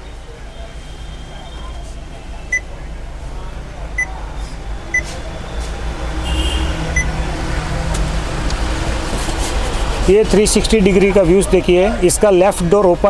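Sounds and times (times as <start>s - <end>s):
short high beeps: 6.2s - 7.2s.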